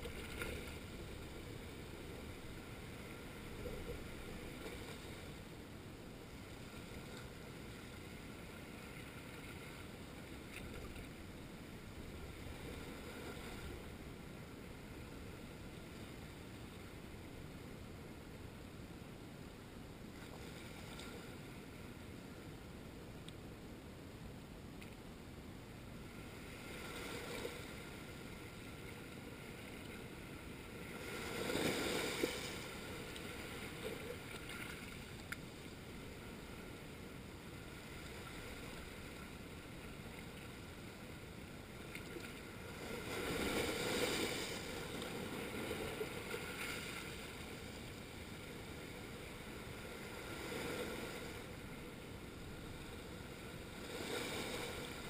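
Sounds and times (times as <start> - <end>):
waves washing over rocks: 30.9 - 34.8, 42.6 - 47.3.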